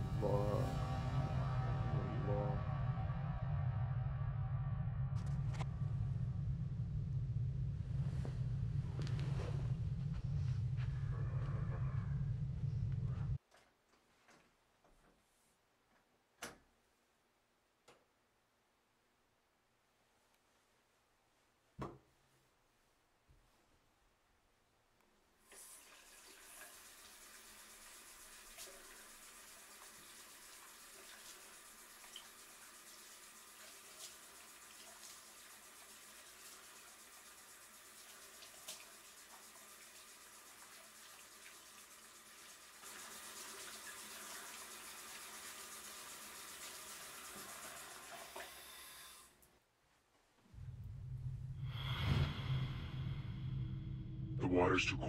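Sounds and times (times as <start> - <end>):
faucet turned on: 25.5 - 49.3
water running into basin: 25.5 - 49.3.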